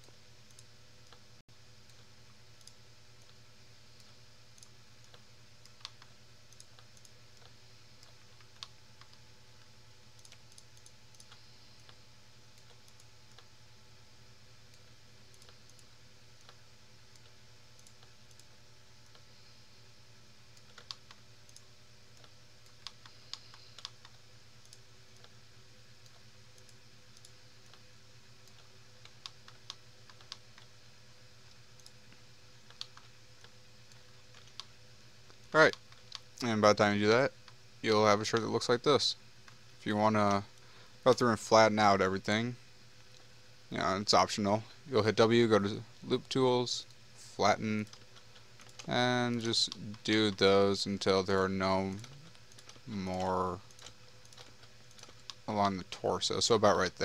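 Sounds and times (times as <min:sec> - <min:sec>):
faint steady hum: 0:00.0 - 0:57.0
mouse and keyboard clicks: 0:20.6 - 0:21.6, 0:22.2 - 0:25.4.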